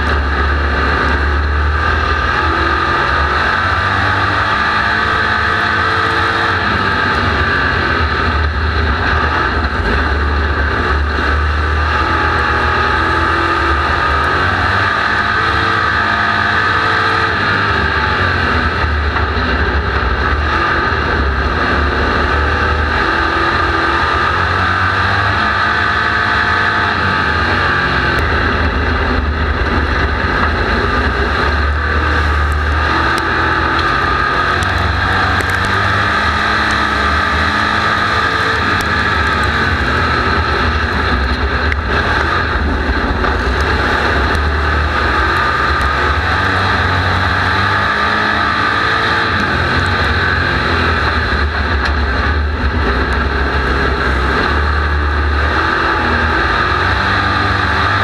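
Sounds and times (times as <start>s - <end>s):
race car engine running hard: 0.0s - 58.0s
rattles and clicks: 28.2s - 36.0s.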